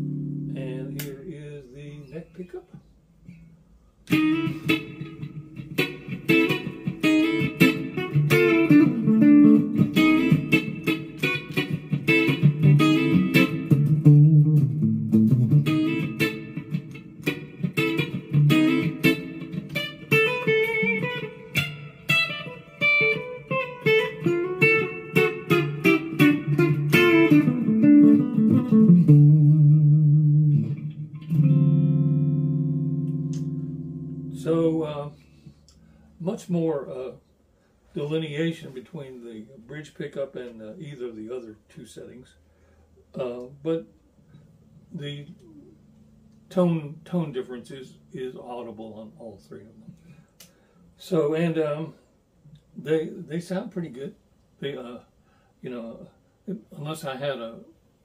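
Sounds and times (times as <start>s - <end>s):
guitar chord ringing: 0.0s - 1.4s, 4.1s - 35.1s, 44.4s - 50.2s
electric guitar notes and runs: 4.1s - 34.8s.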